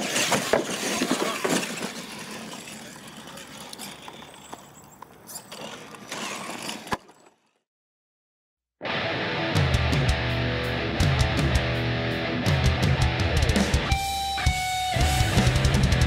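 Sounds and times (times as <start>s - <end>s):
toy trucks driving on dirt: 0.0s - 7.7s.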